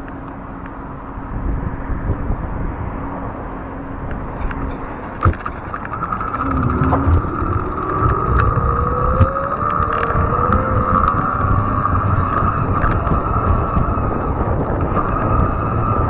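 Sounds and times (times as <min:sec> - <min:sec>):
tyres humming on asphalt: 0:00.0 - 0:16.0
wind on microphone: 0:01.3 - 0:16.0
electric motor whine rising: 0:05.2 - 0:16.0.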